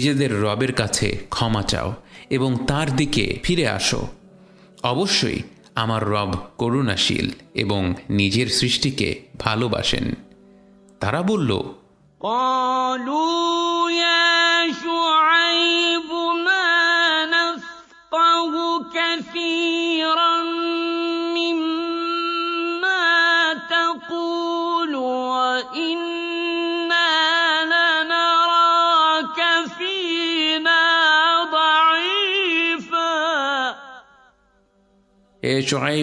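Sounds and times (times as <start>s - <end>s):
person chanting recitation: 0.0s - 4.2s, 11.0s - 33.8s, 35.4s - 36.0s.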